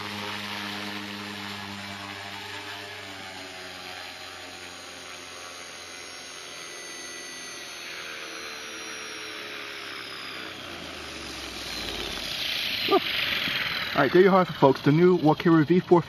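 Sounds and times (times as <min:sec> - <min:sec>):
rc helicopter rotor whirring: 0:00.0 - 0:16.0.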